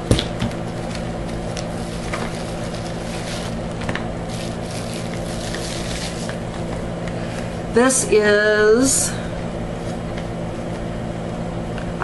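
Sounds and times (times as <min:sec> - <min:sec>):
low background hum: 0:00.0 - 0:12.0
package rustling: 0:00.7 - 0:06.8.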